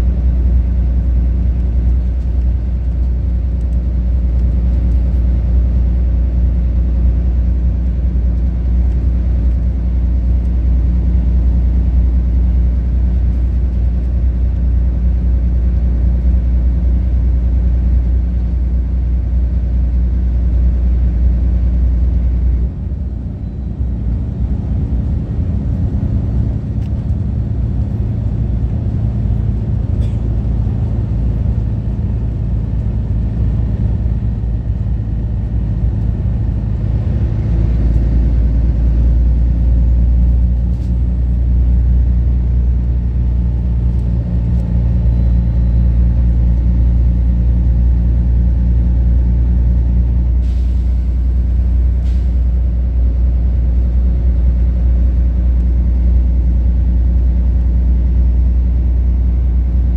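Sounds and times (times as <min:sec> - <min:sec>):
bus engine drone: 0:00.0 - 0:59.9
tyre and road noise: 0:22.6 - 0:47.3.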